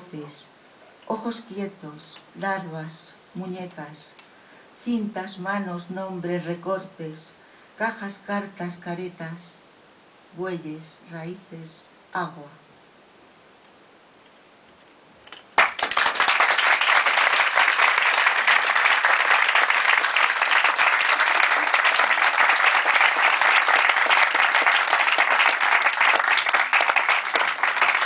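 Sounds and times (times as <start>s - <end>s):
audience applause: 15.6s - 28.0s.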